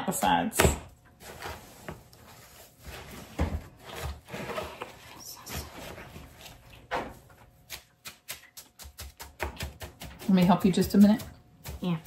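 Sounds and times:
spatula scraping plastic bowl: 0:01.2 - 0:06.8.

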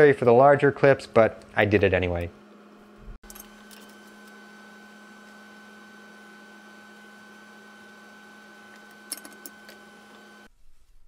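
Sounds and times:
electrical mains hum: 0:00.0 - 0:10.6.

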